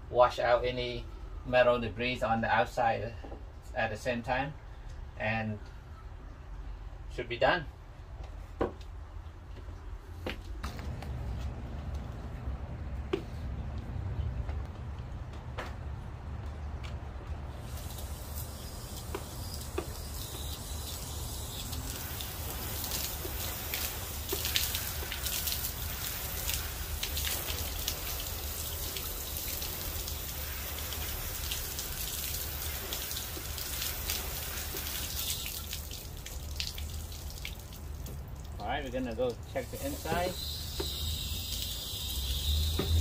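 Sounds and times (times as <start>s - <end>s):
hose spraying water on metal: 17.5s - 43.0s.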